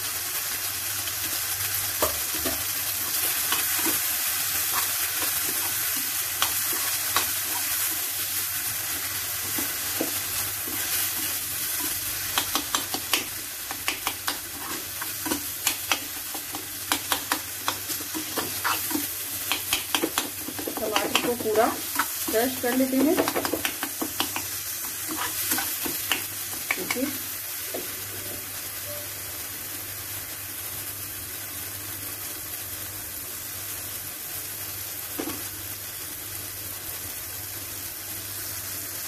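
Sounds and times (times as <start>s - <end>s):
food sizzling in hot oil: 0.0s - 39.0s
metal spatula scraping a pan: 17.6s - 19.1s, 25.0s - 25.9s.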